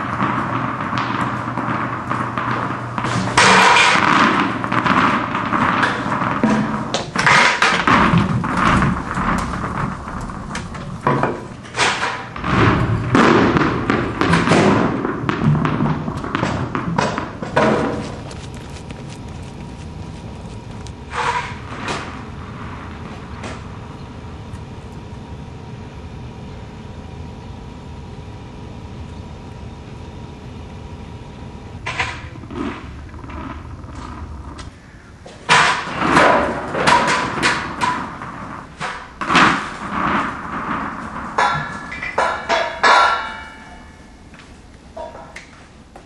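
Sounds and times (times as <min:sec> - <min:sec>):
tennis balls bouncing on hard floor: 0:00.0 - 0:11.5, 0:12.4 - 0:21.5
faint steady hum: 0:00.0 - 0:46.0
low rumbling background noise: 0:00.0 - 0:46.0.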